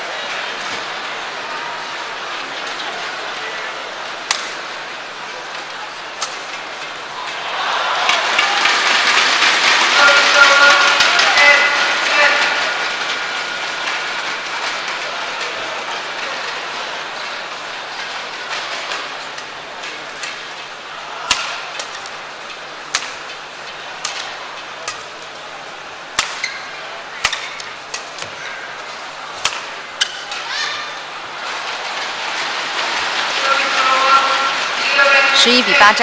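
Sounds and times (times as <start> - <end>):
crowd murmur: 0.0 - 36.0
racket striking shuttlecock: 21.2 - 22.1, 22.9 - 23.2, 24.0 - 25.2, 26.1 - 28.4, 29.4 - 30.3.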